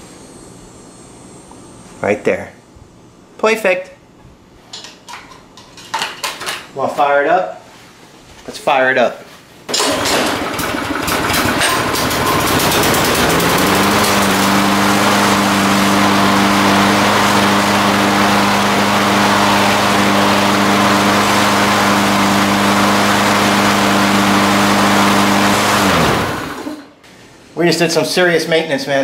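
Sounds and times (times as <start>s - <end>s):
lawn mower engine running: 9.7s - 27.0s.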